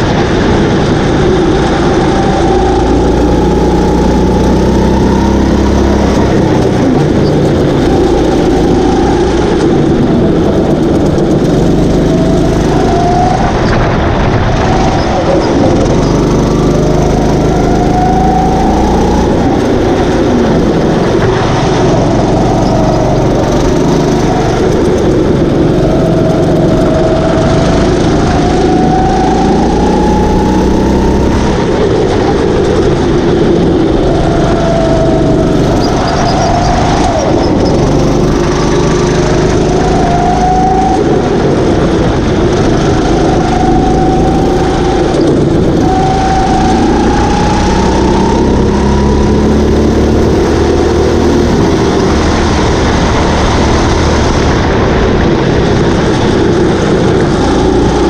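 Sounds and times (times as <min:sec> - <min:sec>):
kart engine revving: 0:00.0 - 0:58.0
wind noise: 0:00.0 - 0:58.0.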